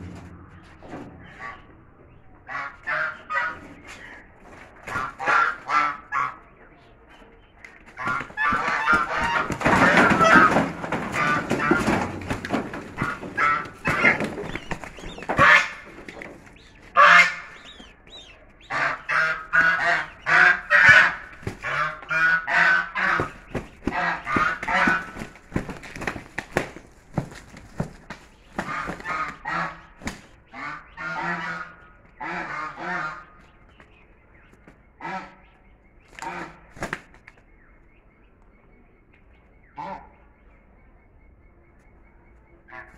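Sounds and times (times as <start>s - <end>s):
geese honking harshly: 2.4s - 4.1s, 4.9s - 6.4s, 8.0s - 16.0s, 16.9s - 25.4s, 28.6s - 33.4s, 35.0s - 35.5s, 39.8s - 40.2s
wings beating: 2.6s - 6.1s, 7.6s - 31.0s, 36.0s - 37.4s.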